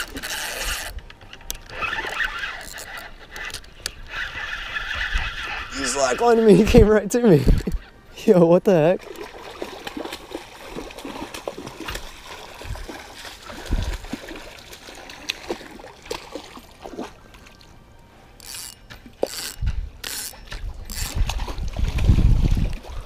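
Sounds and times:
fishing reel clicks: 0:00.0 - 0:06.4, 0:18.4 - 0:21.3
light water sounds: 0:08.7 - 0:23.0.

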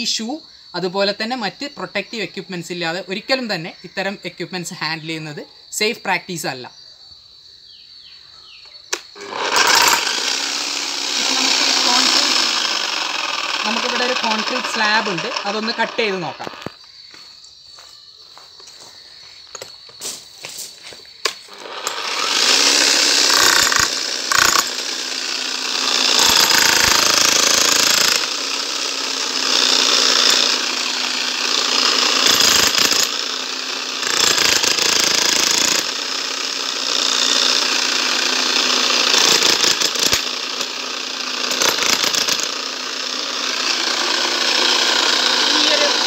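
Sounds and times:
motor hum: 0:09.0 - 0:16.8
demolition hammer breaking concrete: 0:38.8 - 0:40.8.

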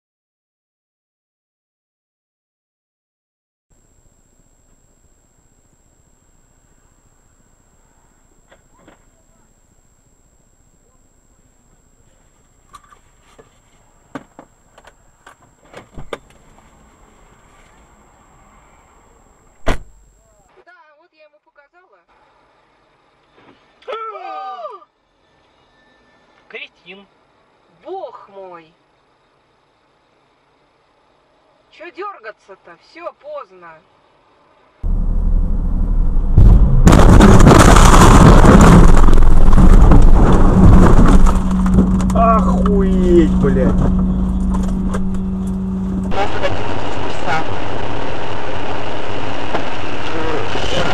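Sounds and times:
high electronic whine: 0:03.8 - 0:15.2, 0:34.8 - 0:50.9
faint steady rumble: 0:03.8 - 0:20.5, 0:34.0 - 0:50.9
car crash: 0:34.8 - 0:45.2.

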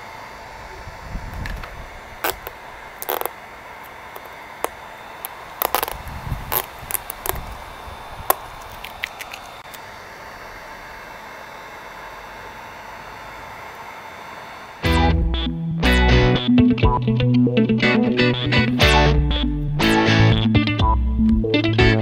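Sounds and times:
heat gun blowing with faint whine: 0:00.0 - 0:14.8
stickers peeling with clicks: 0:02.2 - 0:07.6, 0:08.3 - 0:09.8.

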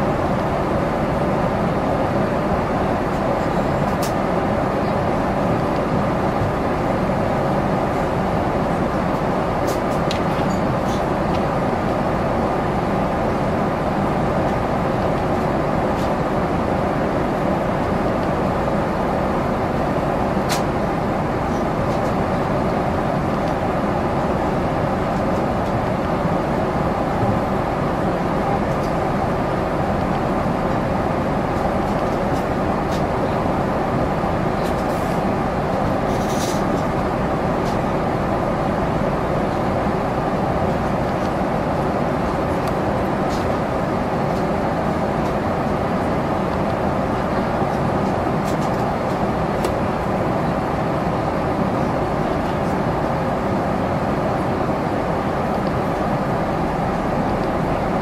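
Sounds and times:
airliner cabin rush: 0:00.0 - 0:58.0.

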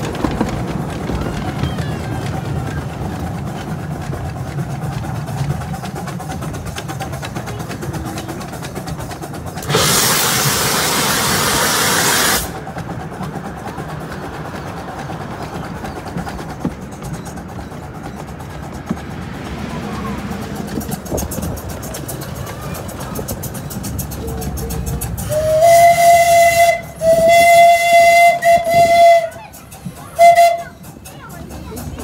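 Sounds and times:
miniature steam locomotive running: 0:00.0 - 0:32.0
steam venting hiss: 0:09.5 - 0:12.6.

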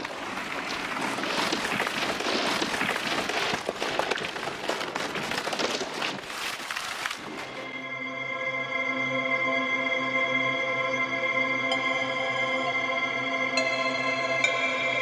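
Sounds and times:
dense crackling noise: 0:00.0 - 0:07.8.

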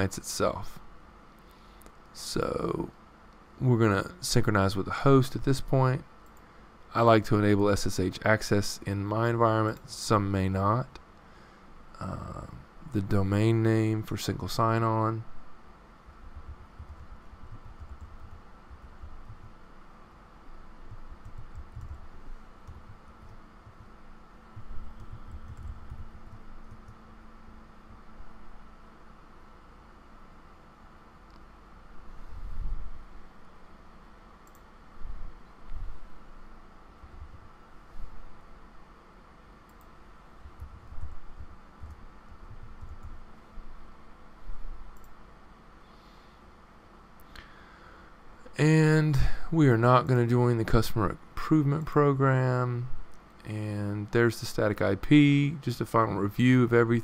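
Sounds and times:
faint steady hum: 0:00.0 - 0:57.0
typing on computer keyboard: 0:16.4 - 0:19.6, 0:20.9 - 0:23.9, 0:24.6 - 0:27.0.

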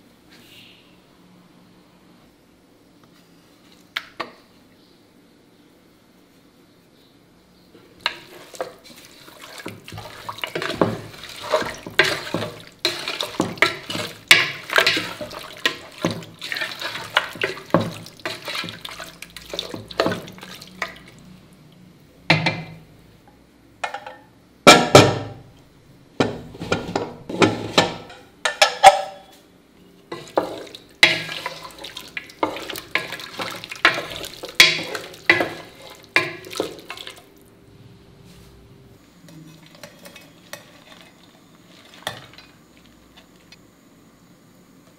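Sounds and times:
spatula scraping metal pot: 0:08.0 - 0:21.1, 0:30.1 - 0:37.2, 0:39.3 - 0:42.5.

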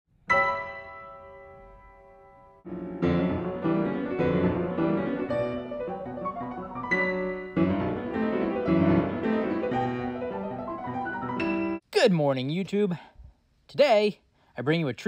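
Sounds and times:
piano music: 0:00.2 - 0:11.8.

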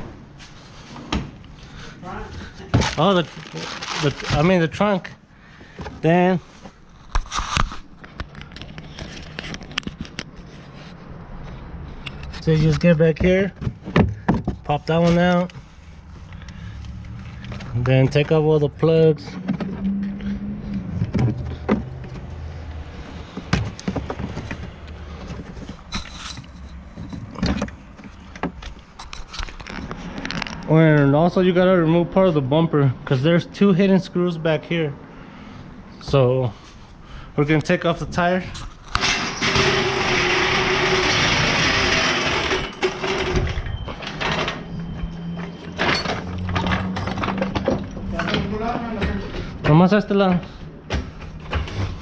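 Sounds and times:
low hum: 0:19.3 - 0:23.3
impact wrench rattling: 0:39.0 - 0:43.6.

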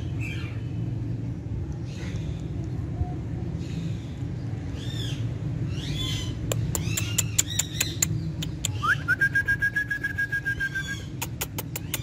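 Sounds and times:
parakeet sharp clicks: 0:06.4 - 0:08.8, 0:11.2 - 0:12.0
rising whistle: 0:08.8 - 0:11.0.

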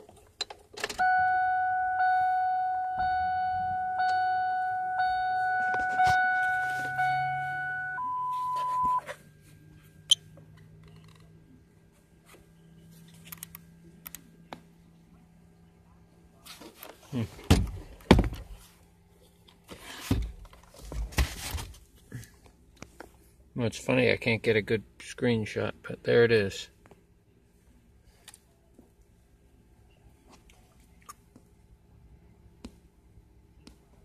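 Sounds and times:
electronic beeper tone: 0:01.0 - 0:09.1
single higher beep: 0:01.0 - 0:09.1.

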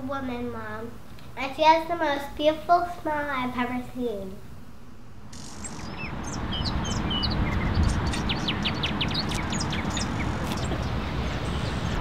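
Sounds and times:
street noise rumble: 0:05.1 - 0:12.0
small birds chirping: 0:05.3 - 0:12.0.

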